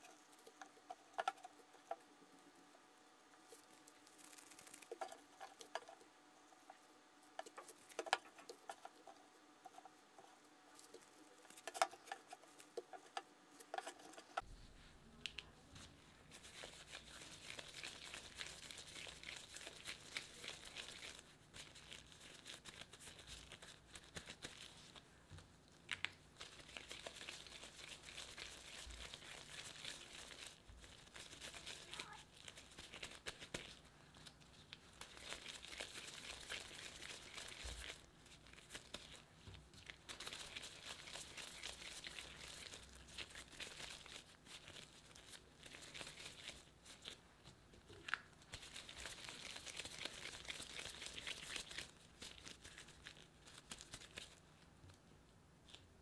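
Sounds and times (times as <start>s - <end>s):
plastic wrap crinkling: 3.4s - 6.0s, 25.7s - 47.2s, 47.8s - 54.4s.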